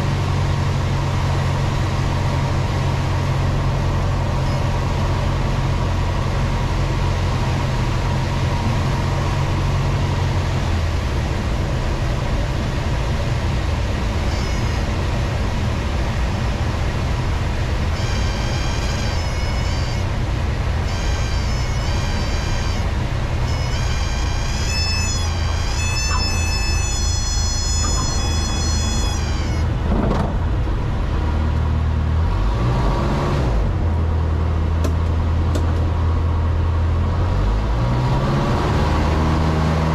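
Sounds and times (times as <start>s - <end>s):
airplane engine droning: 0.0s - 32.6s
electronic stall warning tone: 18.0s - 29.8s.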